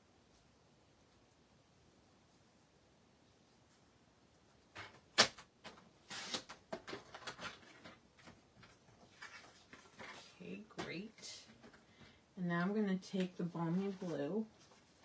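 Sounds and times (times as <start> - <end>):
paper rustling: 4.7 - 10.8, 13.2 - 15.0.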